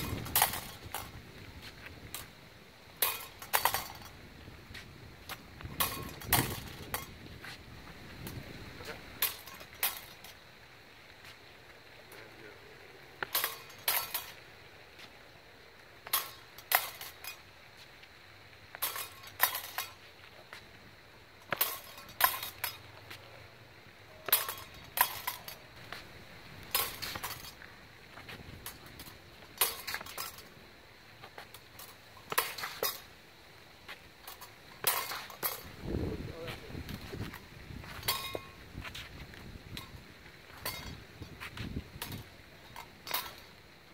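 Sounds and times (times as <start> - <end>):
rapier blades clashing: 3.0 - 4.1, 9.2 - 10.4, 13.2 - 14.4, 18.7 - 20.0, 21.4 - 22.9, 24.1 - 25.6, 26.7 - 27.6, 28.6 - 30.5, 31.3 - 33.1, 34.2 - 35.7, 42.0 - 43.6.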